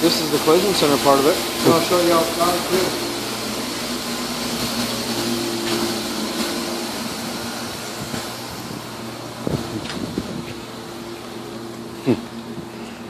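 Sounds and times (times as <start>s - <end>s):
steady machine hum: 0.0s - 13.0s.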